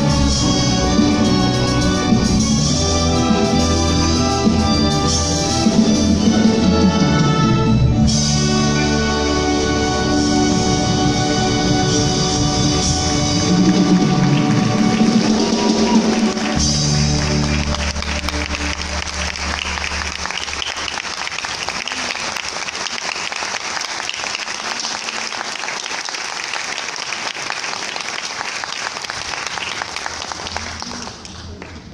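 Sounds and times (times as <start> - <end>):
audience applause: 12.7 - 31.9.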